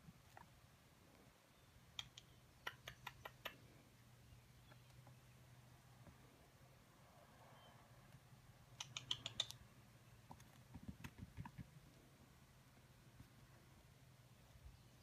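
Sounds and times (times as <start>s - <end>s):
squirrel claws clicking: 8.7s - 9.6s.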